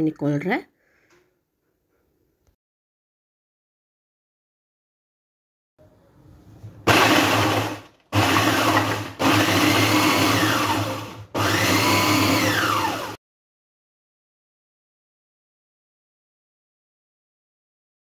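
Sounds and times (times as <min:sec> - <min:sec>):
food processor motor whirring: 0:06.9 - 0:13.2.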